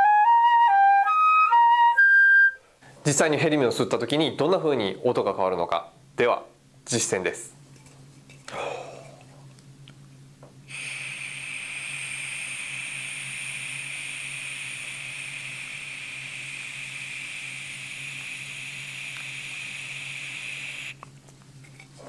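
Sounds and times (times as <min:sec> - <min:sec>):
helium gas hissing from can: 0:10.7 - 0:21.0.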